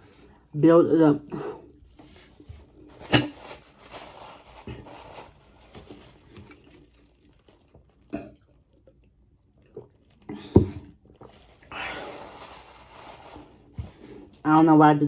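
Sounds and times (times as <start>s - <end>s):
paper napkin rustling: 2.0s - 8.0s, 11.2s - 14.4s
person gulping water: 6.1s - 11.7s.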